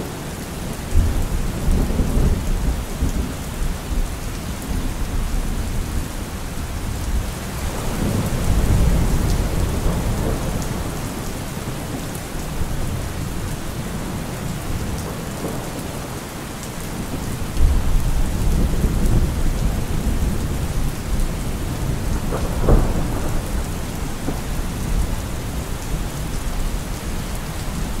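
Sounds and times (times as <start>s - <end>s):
steady rain: 0.0s - 28.0s
thunder rumbling: 6.8s - 16.1s, 16.9s - 28.0s.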